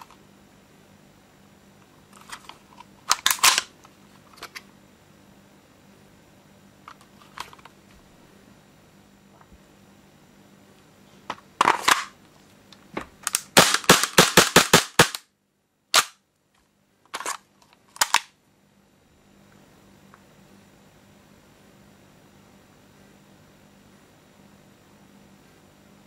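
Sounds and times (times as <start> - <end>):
airsoft pistol firing: 13.4 - 15.3, 16.0 - 16.2.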